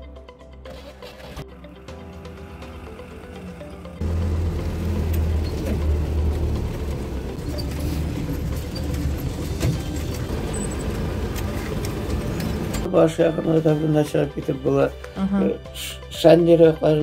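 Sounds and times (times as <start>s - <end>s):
vehicle engine pulling: 0.7s - 12.9s
vehicle body knocks and clatter: 7.4s - 11.8s.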